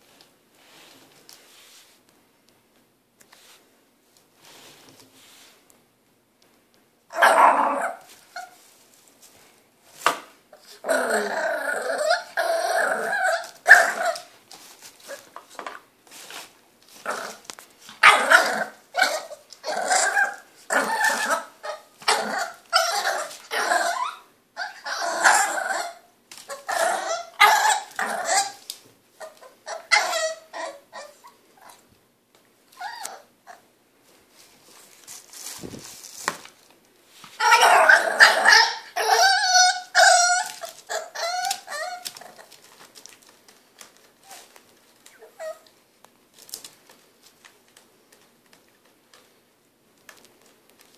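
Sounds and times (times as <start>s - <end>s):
puppy barking and growling: 7.1s - 8.6s, 10.5s - 14.4s, 17.0s - 31.8s, 37.4s - 42.6s.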